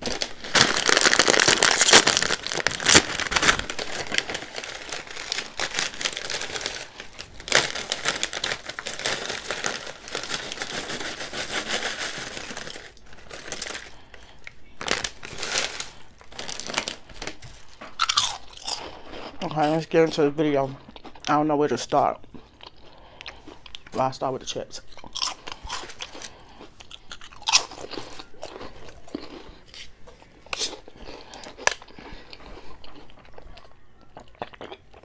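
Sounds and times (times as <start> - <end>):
plastic packaging crinkling: 0.0 - 20.2.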